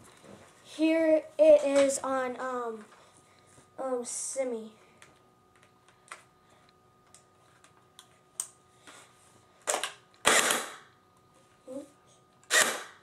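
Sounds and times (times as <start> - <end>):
airsoft gun shots: 9.7 - 10.9.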